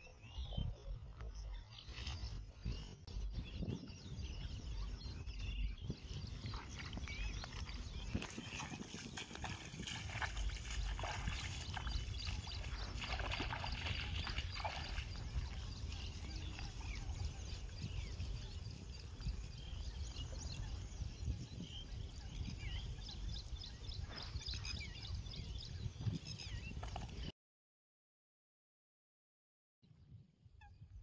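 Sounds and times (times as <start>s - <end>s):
birds chirping: 0.0s - 27.3s
feet splashing through shallow water: 5.4s - 19.6s.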